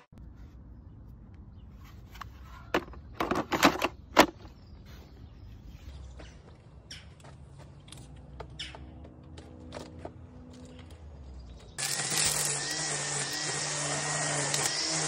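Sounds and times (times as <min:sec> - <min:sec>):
plastic scraping rattle: 0:02.7 - 0:04.4.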